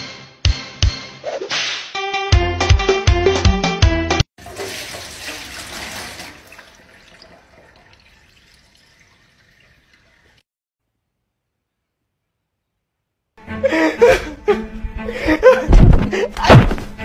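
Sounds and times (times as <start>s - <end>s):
background music: 0.0s - 4.3s, 13.4s - 17.0s
liquid splashing into metal sink: 4.4s - 10.4s.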